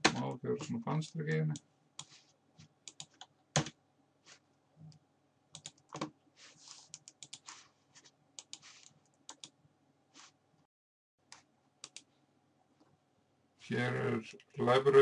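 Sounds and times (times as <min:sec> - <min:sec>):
mouse clicks: 0:08.4 - 0:09.6.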